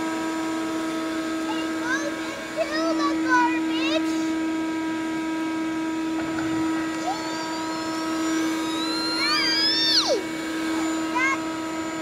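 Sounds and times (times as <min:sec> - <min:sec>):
shop vacuum running: 0:00.0 - 0:12.0
high rising tone: 0:05.7 - 0:12.0.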